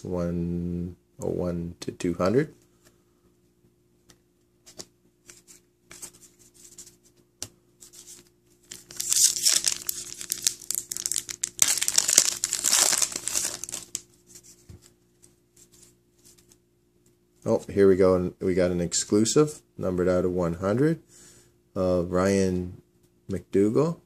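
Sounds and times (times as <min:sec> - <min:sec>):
foil wrapper tearing and crinkling: 0:08.7 - 0:14.0.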